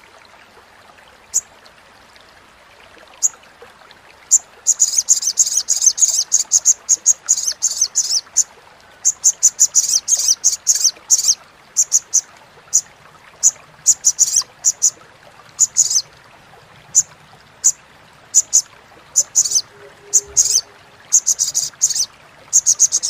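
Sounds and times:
bird chattering call: 15.6 - 16.0, 19.2 - 23.0.

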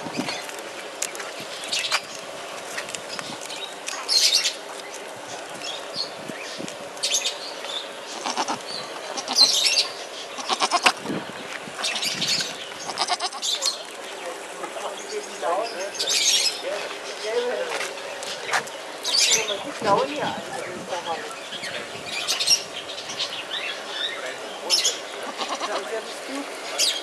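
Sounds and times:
goats bleating: 8.1 - 9.5, 10.4 - 11.0, 12.8 - 13.5, 25.2 - 26.0.

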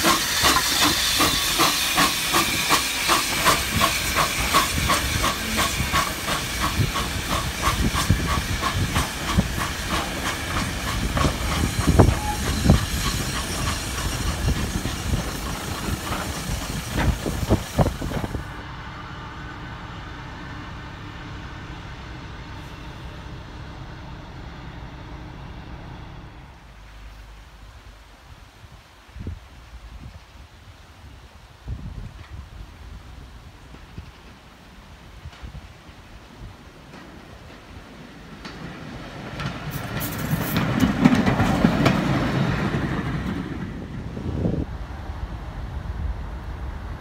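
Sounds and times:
steam hiss: 0.0 - 18.6, 33.6 - 44.6
locomotive exhaust beats: 0.0 - 28.0.

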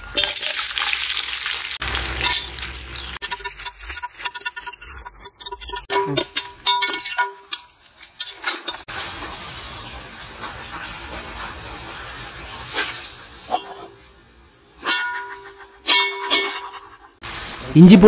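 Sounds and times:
onions sizzling in hot fat: 0.0 - 16.0, 17.2 - 18.0
metal skimmer scraping a pot: 3.2 - 8.8.

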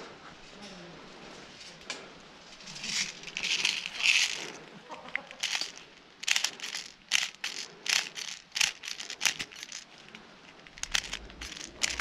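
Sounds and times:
leaves and twigs crackling: 2.6 - 12.0.

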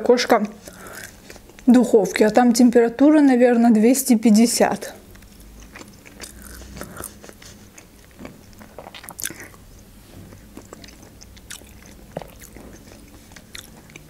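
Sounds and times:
chewing food: 0.4 - 2.4, 5.0 - 14.0.

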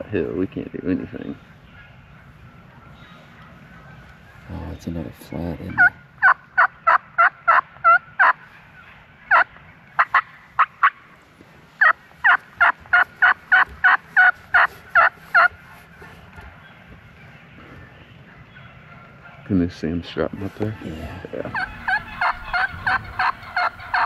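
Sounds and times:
turkey yelping: 5.8 - 11.0, 11.8 - 16.8, 18.0 - 19.5, 20.4 - 24.0.

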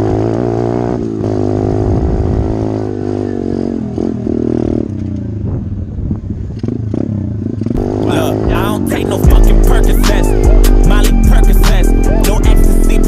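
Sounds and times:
motorbike engine revving: 0.0 - 13.0.

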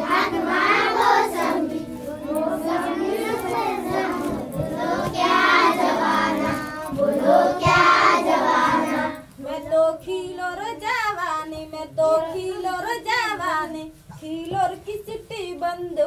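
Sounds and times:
children singing in unison: 0.0 - 9.7.

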